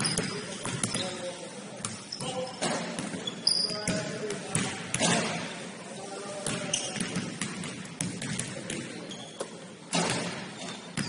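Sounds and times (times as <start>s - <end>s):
ball bouncing: 0.0s - 1.1s
sneakers squeaking on court: 0.0s - 5.4s, 6.4s - 11.0s.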